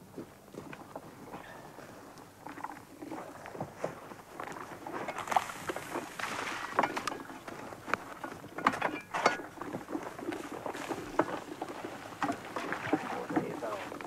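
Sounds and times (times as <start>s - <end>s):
wooden tubs and tools clattering: 2.5s - 14.0s
footsteps crunching in snow: 3.1s - 6.8s.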